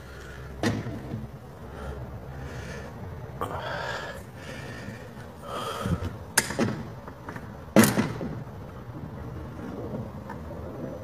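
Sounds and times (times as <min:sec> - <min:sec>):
person breathing: 0:00.0 - 0:00.6, 0:01.6 - 0:06.3
thump: 0:00.6 - 0:01.2, 0:07.8 - 0:08.4.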